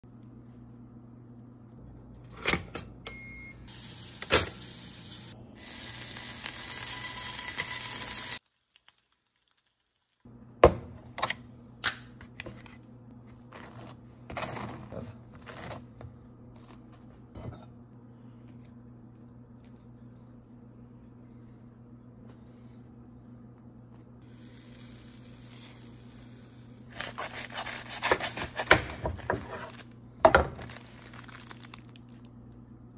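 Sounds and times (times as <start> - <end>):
faint steady hum: 9.9 - 32.9
aluminium foil rustling: 26.9 - 32.3.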